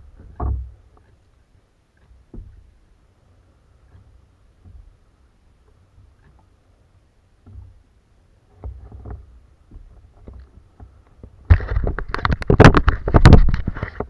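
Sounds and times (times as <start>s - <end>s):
clatter of knocks on kayak: 8.6s - 14.0s.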